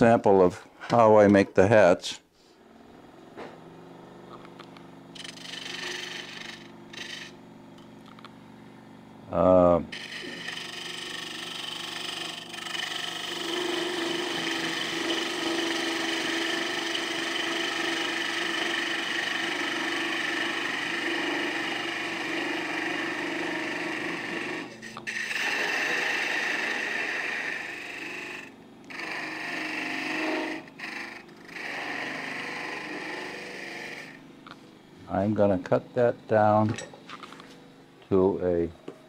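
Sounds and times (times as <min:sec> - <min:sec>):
wood lathe humming: 0:02.6 - 0:36.8
turning tool cutting wood hiss: 0:05.1 - 0:07.4, 0:09.9 - 0:34.2.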